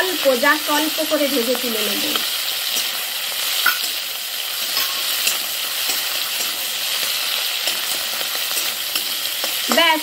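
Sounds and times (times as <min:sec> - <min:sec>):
prawns sizzling in hot oil: 0:00.0 - 0:10.0
metal spatula scraping pan: 0:02.6 - 0:10.0.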